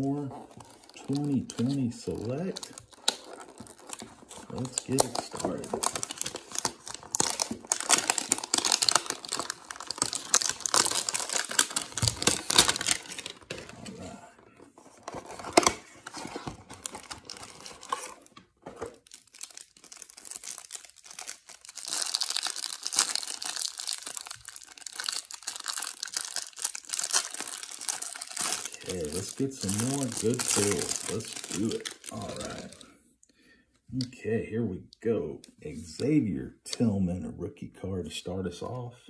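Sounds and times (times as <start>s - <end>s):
card pack wrapper crinkling: 0.0s - 32.9s
cardboard box tearing: 2.6s - 14.0s, 14.9s - 19.0s, 26.7s - 32.7s.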